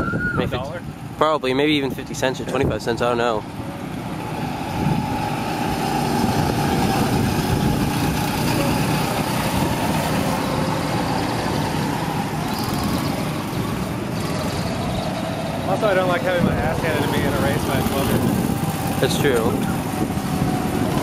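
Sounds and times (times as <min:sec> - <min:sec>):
go-kart engines droning: 0:00.0 - 0:21.0.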